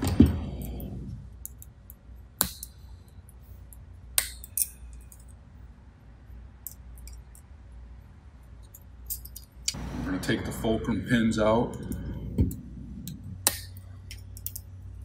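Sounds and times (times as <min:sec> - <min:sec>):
heavy thump: 0:00.0 - 0:01.1
allen key clicking on metal: 0:03.7 - 0:05.4, 0:08.6 - 0:09.8, 0:13.5 - 0:14.7.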